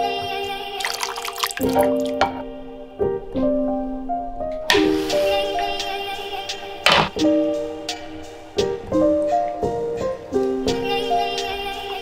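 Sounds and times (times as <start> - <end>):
background music: 0.0 - 12.0
sauce splashing: 0.8 - 2.2.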